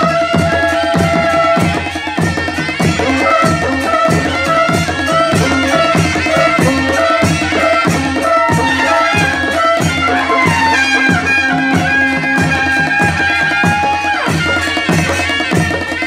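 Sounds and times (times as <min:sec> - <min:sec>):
steady drum beat: 0:00.0 - 0:16.0.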